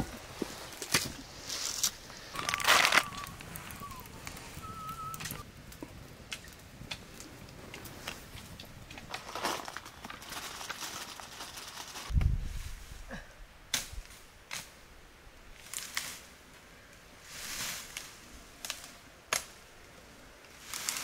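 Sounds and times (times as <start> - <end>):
branches cracking: 0.0 - 12.4, 15.6 - 16.4, 17.4 - 21.0
dry twigs rustling: 0.0 - 12.9, 15.5 - 21.0.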